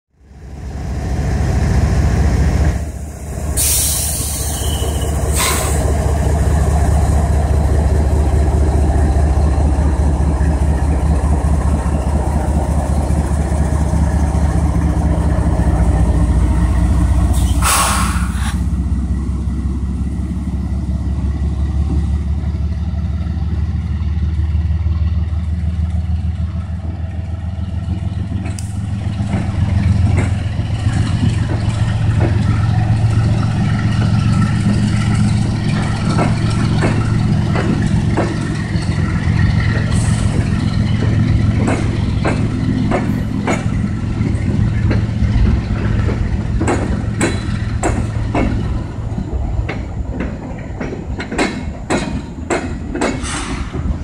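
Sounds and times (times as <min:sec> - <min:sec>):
locomotive engines droning: 0:00.1 - 0:54.0
short hisses: 0:03.6 - 0:04.6, 0:17.4 - 0:18.6.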